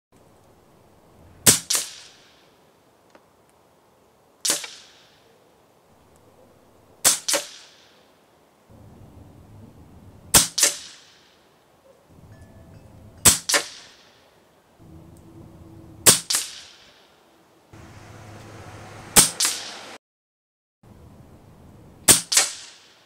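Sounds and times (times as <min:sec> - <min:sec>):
air rifle shots: 0:04.4 - 0:05.2, 0:07.0 - 0:08.0, 0:10.3 - 0:11.4, 0:13.2 - 0:14.2, 0:16.0 - 0:17.0, 0:19.2 - 0:19.8.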